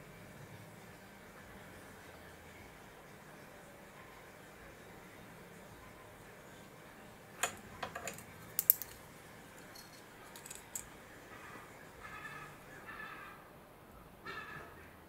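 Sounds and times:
small hard objects clicking: 7.4s - 10.9s.

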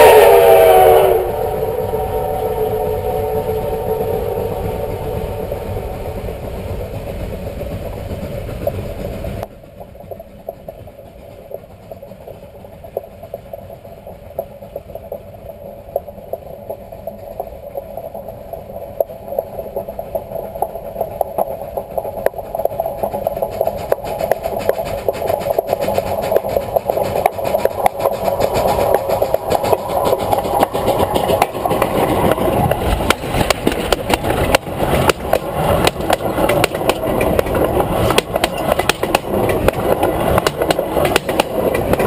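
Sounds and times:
steam whistle chord: 0.0s - 6.8s
locomotive exhaust beats: 0.0s - 42.0s.

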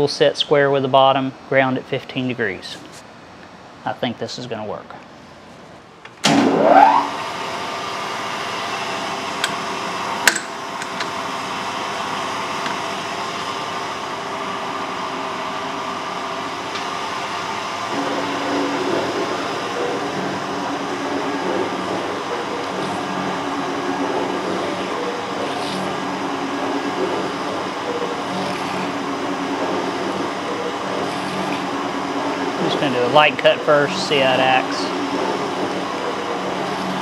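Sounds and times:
electric motor whining and humming: 8.2s - 37.0s.

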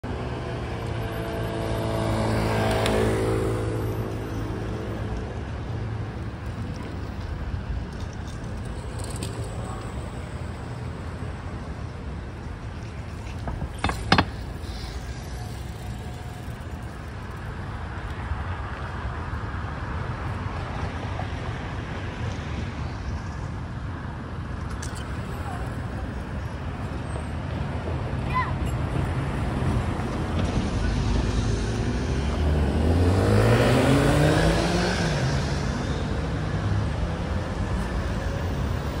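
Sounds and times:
low traffic hum: 0.0s - 39.0s
car passing: 0.2s - 7.3s, 29.0s - 39.0s
sharp knocks: 13.5s - 14.4s.

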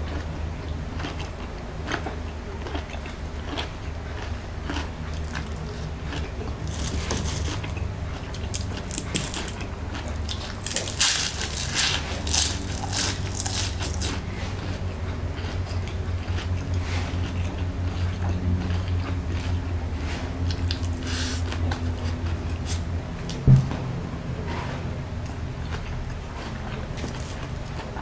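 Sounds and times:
chewing: 0.0s - 23.4s, 24.5s - 28.0s
crunching bites of spring rolls: 1.0s - 14.8s, 27.0s - 28.0s.

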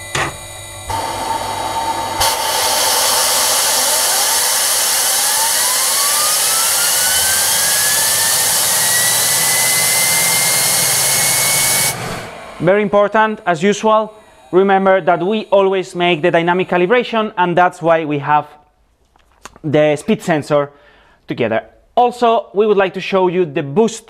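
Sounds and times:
turbocharger whine rising in pitch: 0.0s - 16.8s
loud rush of air: 0.9s - 13.3s.

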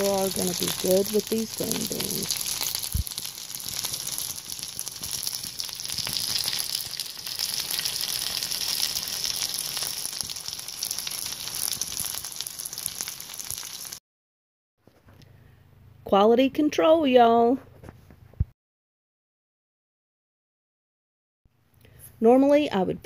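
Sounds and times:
chicken sizzling in hot oil: 0.0s - 14.0s.

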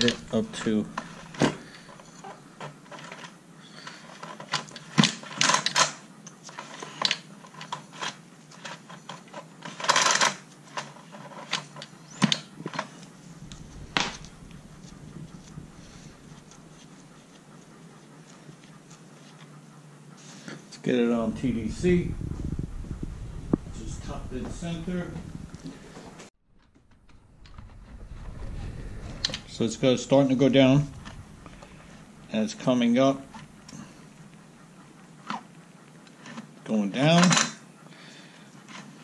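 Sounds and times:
rush of noise: 13.1s - 17.1s, 26.8s - 34.2s.

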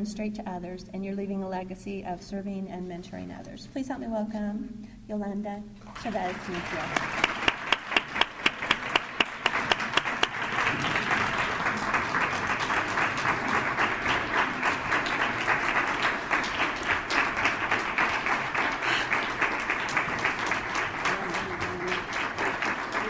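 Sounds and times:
crowd applauding: 5.9s - 23.0s
hands clapping sharply: 5.9s - 23.0s.

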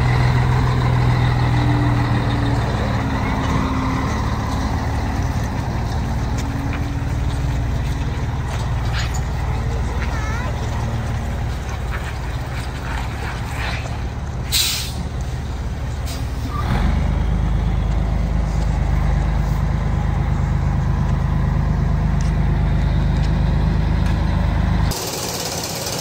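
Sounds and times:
truck diesel engine running: 0.0s - 26.0s
air hiss: 14.5s - 15.0s.

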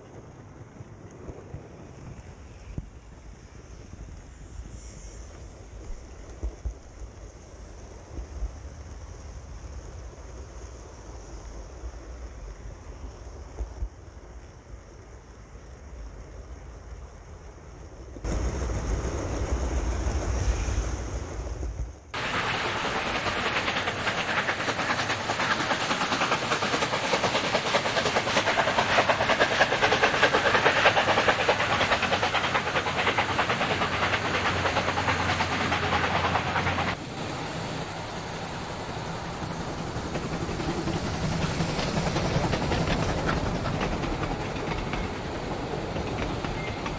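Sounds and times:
model train wheels clattering: 22.2s - 37.0s, 39.4s - 46.9s.

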